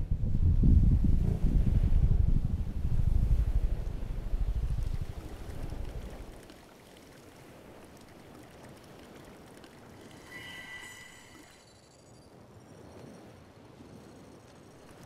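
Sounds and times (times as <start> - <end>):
high ringing tone: 10.0 - 12.3.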